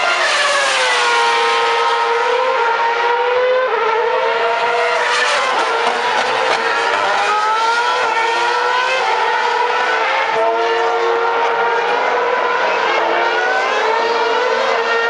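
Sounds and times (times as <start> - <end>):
racing car engine screaming: 4.1 - 15.0.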